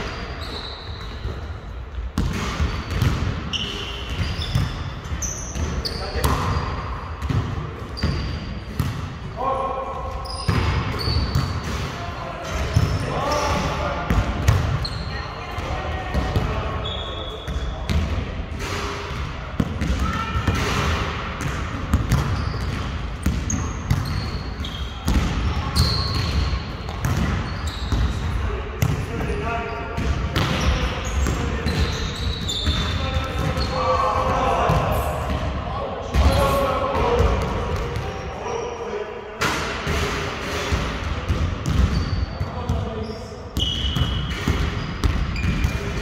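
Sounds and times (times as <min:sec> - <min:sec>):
sneakers squeaking on floor: 0:00.0 - 0:18.2, 0:19.1 - 0:34.8, 0:41.3 - 0:46.0
basketball bouncing on court: 0:01.0 - 0:06.6, 0:07.2 - 0:09.2, 0:10.4 - 0:11.9, 0:13.6 - 0:15.1, 0:19.1 - 0:29.4, 0:30.0 - 0:35.5, 0:40.7 - 0:42.8, 0:43.6 - 0:46.0.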